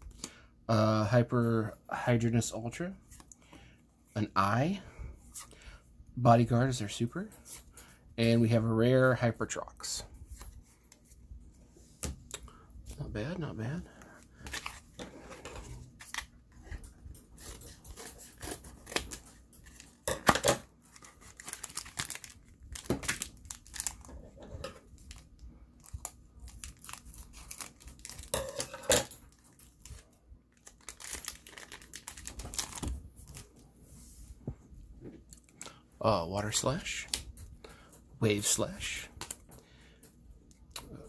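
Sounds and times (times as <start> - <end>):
wrapper crinkling and tearing: 20.8 - 24.1, 24.9 - 33.6.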